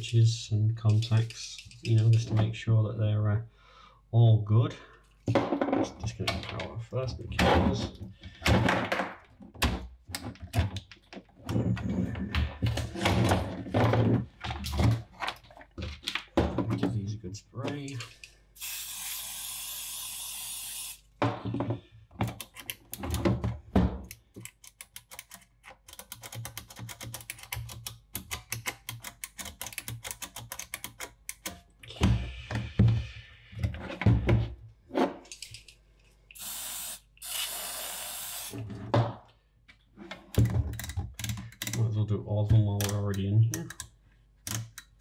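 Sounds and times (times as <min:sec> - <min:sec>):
aerosol spray bursts: 0:18.6 - 0:21.0, 0:36.4 - 0:38.5.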